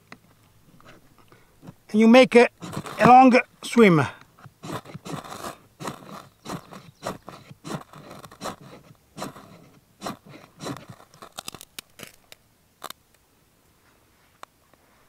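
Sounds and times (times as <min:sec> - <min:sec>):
fire steel scraping: 0:00.8 - 0:12.3
small sharp cracks: 0:10.0 - 0:13.2.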